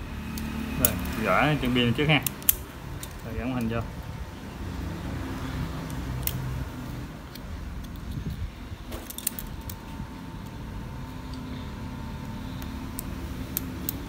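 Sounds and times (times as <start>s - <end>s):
steady low hum: 0.0s - 14.0s
plastic parts clicking: 2.2s - 3.8s, 5.8s - 6.5s, 7.2s - 9.8s, 12.5s - 14.0s.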